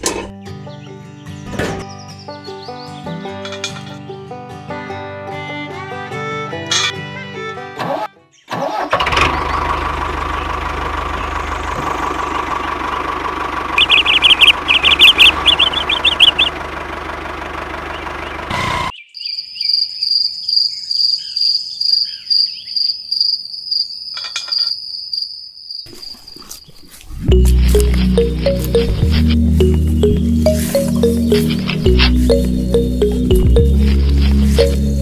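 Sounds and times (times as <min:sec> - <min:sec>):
engine rumbling: 0:09.0 - 0:18.9, 0:27.0 - 0:35.0
high chirps: 0:13.8 - 0:16.6, 0:27.3 - 0:35.0
high-pitched rhythmic chirping: 0:13.8 - 0:16.6, 0:27.3 - 0:35.0.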